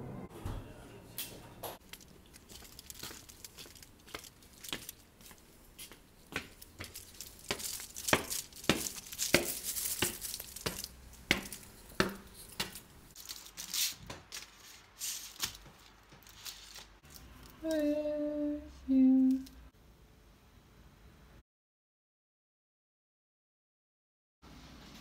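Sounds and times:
aluminium foil crinkling: 0:01.8 - 0:17.9.

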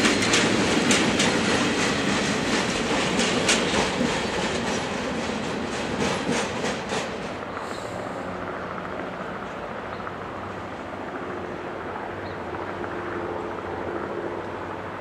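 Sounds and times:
wheels clicking over rail joints: 0:00.0 - 0:07.8
freight wagons rolling past: 0:00.0 - 0:08.8.

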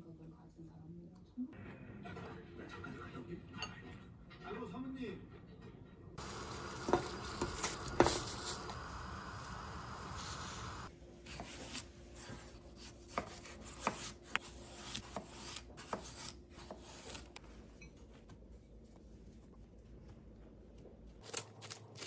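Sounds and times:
water boiling in pot: 0:06.2 - 0:10.9
knife chopping on wooden board: 0:11.3 - 0:17.2.

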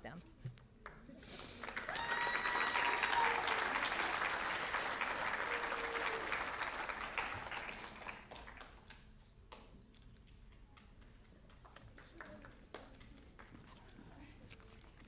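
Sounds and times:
audience applause: 0:01.4 - 0:08.9.

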